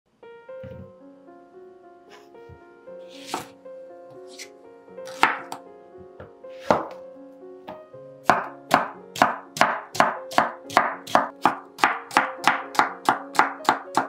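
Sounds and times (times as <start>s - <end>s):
soft background music: 0.1s - 14.0s
knife chopping on cutting board: 3.1s - 3.5s, 5.1s - 5.6s, 6.6s - 7.0s, 8.2s - 14.0s.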